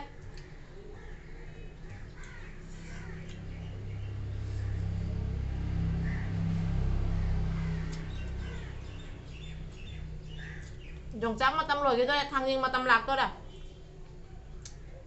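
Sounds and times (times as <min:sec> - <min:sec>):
bird chirping: 0:01.4 - 0:05.2, 0:07.3 - 0:11.2
motor vehicle rumbling past: 0:02.0 - 0:11.5.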